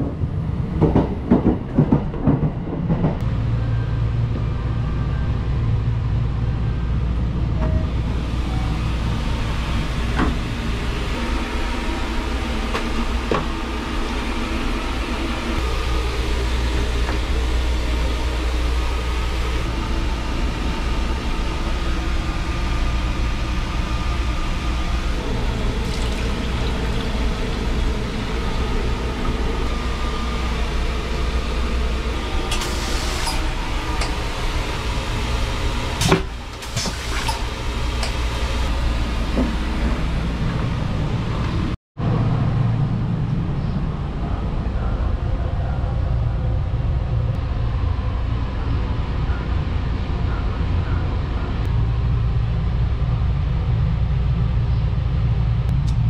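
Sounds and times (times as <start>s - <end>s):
train running rumble: 0.0s - 56.0s
toilet flushing: 8.6s - 40.5s.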